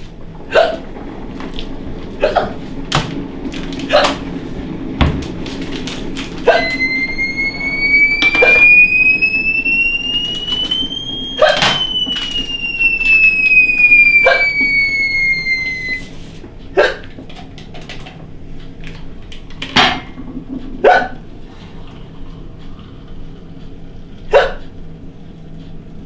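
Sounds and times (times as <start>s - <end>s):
woman hiccuping: 0.5s - 0.8s, 16.8s - 17.1s, 24.3s - 24.6s
high tone sliding in pitch: 6.4s - 16.2s.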